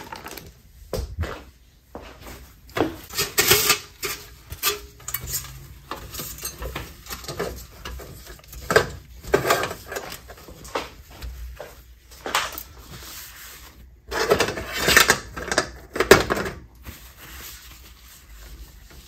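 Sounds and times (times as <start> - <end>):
dishes clinking and clattering: 3.1 - 10.1.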